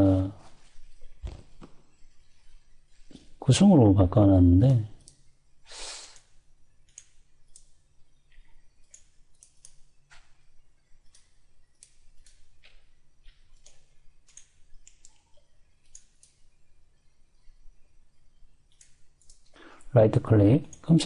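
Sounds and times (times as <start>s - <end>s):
steady low hum: 0.0s - 21.0s
mouse buttons clicking: 6.9s - 10.4s, 11.0s - 16.5s, 18.7s - 19.5s.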